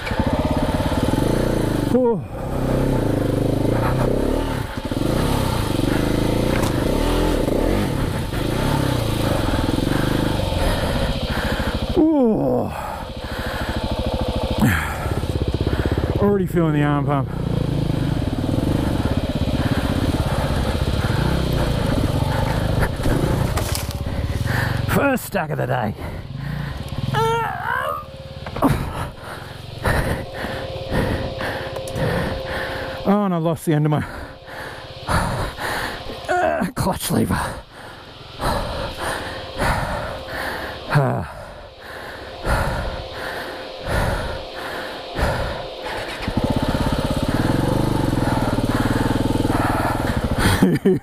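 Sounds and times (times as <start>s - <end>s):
motorcycle engine revving: 0.0s - 51.0s
person straining vocally: 9.8s - 13.1s, 14.6s - 15.3s, 27.0s - 32.4s, 35.1s - 37.8s, 38.4s - 41.7s.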